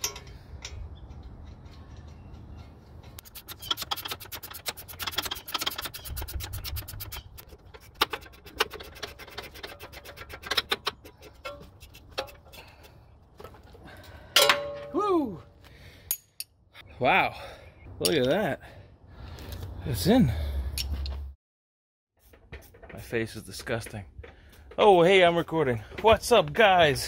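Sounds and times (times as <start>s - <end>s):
ratcheting wrench clicking: 3.0s - 12.5s.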